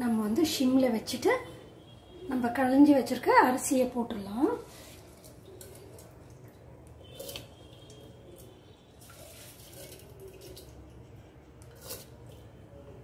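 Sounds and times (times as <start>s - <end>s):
milk bubbling at the boil: 4.5s - 13.0s.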